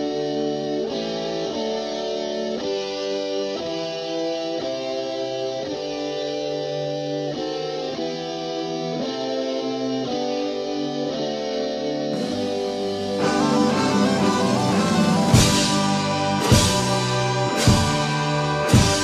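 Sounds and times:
guitar playing slow chords: 0:00.0 - 0:19.0
cymbal crash: 0:12.2 - 0:19.0.

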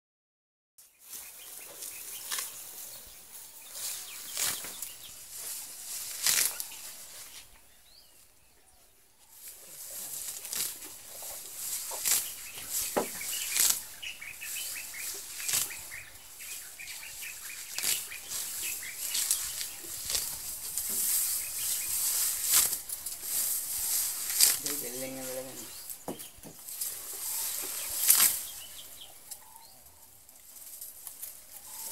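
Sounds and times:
elephant tearing up grass: 0:01.6 - 0:03.0, 0:03.6 - 0:07.4, 0:09.4 - 0:25.5, 0:26.6 - 0:28.9.

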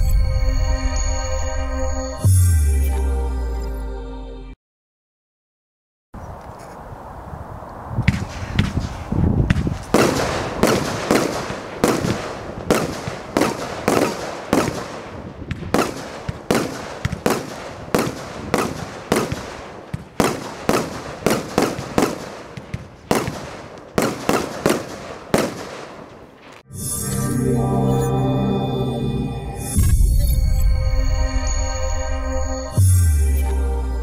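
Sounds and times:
firework shells bursting: 0:08.1 - 0:26.6.

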